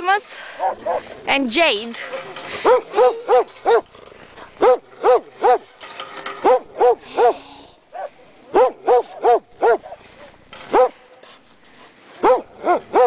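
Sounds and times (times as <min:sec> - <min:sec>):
dog barking: 0:02.6 - 0:03.9, 0:04.6 - 0:05.7, 0:06.4 - 0:11.0, 0:12.2 - 0:13.0.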